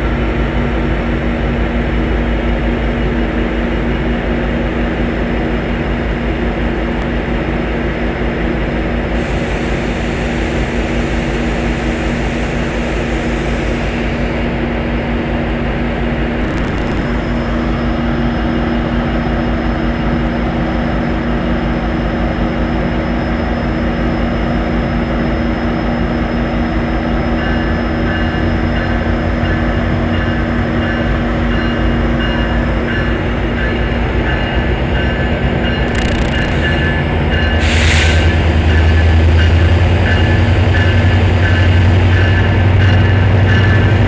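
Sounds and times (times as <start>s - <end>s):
diesel locomotive droning: 0.0s - 44.0s
repeating ringing tone: 34.4s - 37.6s.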